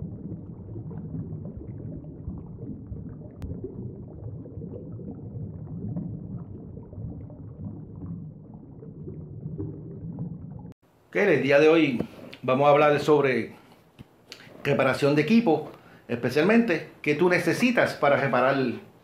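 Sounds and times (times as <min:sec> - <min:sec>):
low rumbling bubbling: 0:00.0 - 0:10.8.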